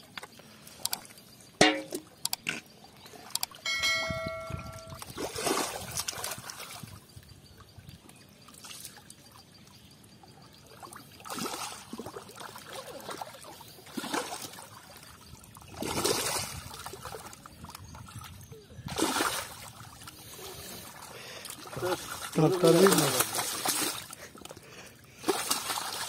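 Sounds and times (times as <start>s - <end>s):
water trickling: 1.6s - 26.0s
hands splashing in mud water: 21.7s - 24.2s, 25.2s - 26.0s.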